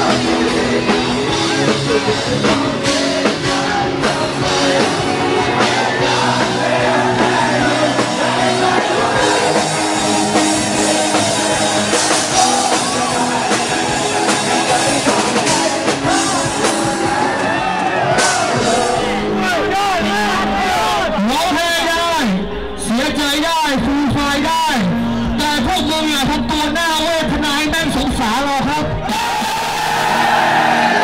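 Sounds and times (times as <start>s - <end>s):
person singing: 0.0s - 22.1s
drum kit: 0.0s - 22.3s, 23.3s - 31.0s
live rock band: 0.0s - 31.0s.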